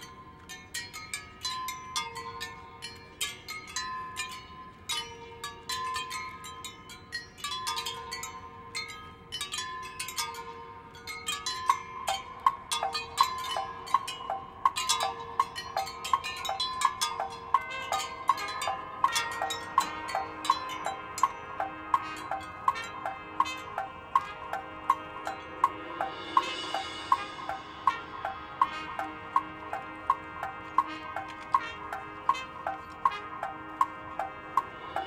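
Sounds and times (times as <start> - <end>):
chimes and mallet keyboards playing: 0.0 - 35.0
repeating high ticking note: 9.5 - 35.0.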